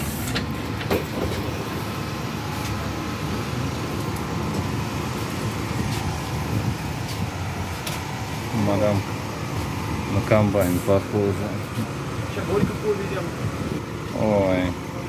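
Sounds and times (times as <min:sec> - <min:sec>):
electric train equipment humming: 0:00.0 - 0:15.0
footstep knocks boarding train: 0:00.2 - 0:01.6.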